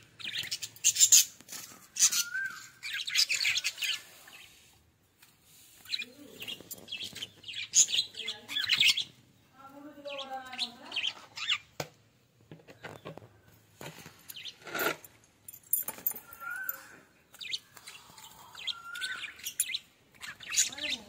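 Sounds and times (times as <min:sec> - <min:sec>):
budgerigars chirping and chattering: 0:00.2 - 0:04.7, 0:05.8 - 0:09.2, 0:09.8 - 0:11.7, 0:16.3 - 0:21.0.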